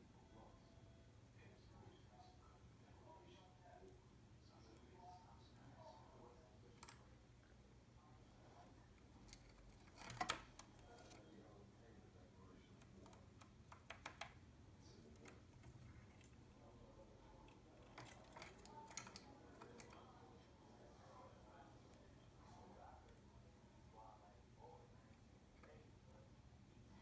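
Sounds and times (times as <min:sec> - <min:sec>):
birds pecking seed in plastic dish: 0:17.3 - 0:20.2.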